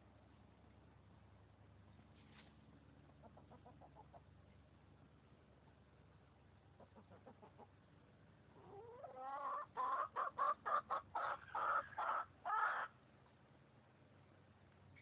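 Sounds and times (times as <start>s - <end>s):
chicken clucking loudly: 3.1s - 4.3s, 6.8s - 7.8s, 8.6s - 13.0s.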